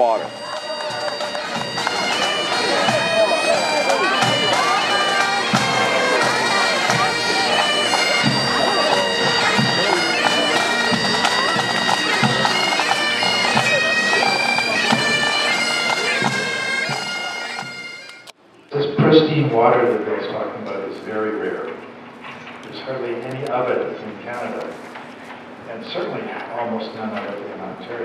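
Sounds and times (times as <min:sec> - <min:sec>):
low drum beat: 0:00.0 - 0:17.1
bagpipes playing a tune: 0:00.0 - 0:18.3.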